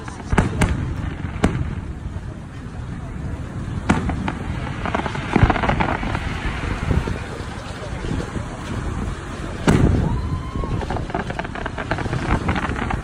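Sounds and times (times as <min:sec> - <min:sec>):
firework bang: 0:00.0 - 0:02.4, 0:03.6 - 0:08.8, 0:09.5 - 0:13.0
firework crackling: 0:00.0 - 0:13.0
deep boom of bursting shell: 0:09.6 - 0:10.2.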